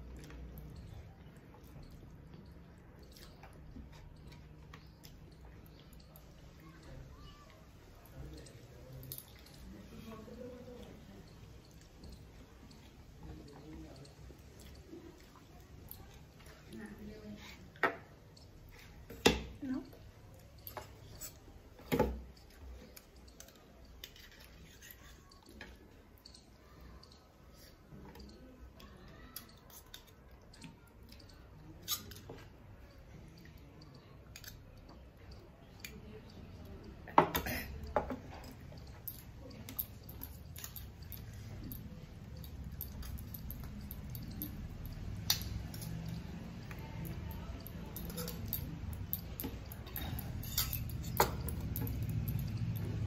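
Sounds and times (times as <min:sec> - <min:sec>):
chewing: 0:00.0 - 0:19.1
steel spoon clacking on bowl: 0:38.7 - 0:53.0.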